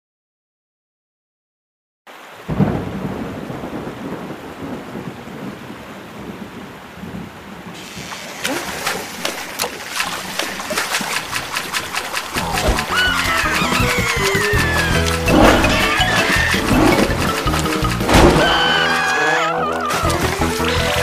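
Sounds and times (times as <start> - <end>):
thunder rumble: 2.5 - 9.3, 11.4 - 18.8
rain hissing: 7.0 - 21.0
water dripping and splashing: 7.8 - 21.0.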